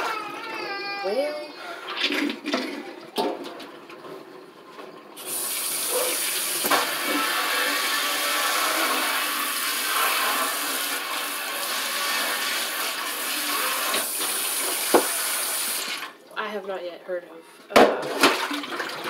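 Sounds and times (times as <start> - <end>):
tap water running into sink: 1.9 - 16.2.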